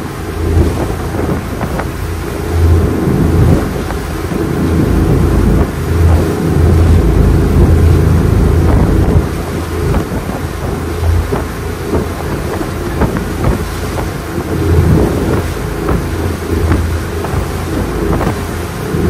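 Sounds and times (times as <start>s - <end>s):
power boat engine rumble: 0.0s - 19.0s
wind buffeting microphone: 0.0s - 19.0s.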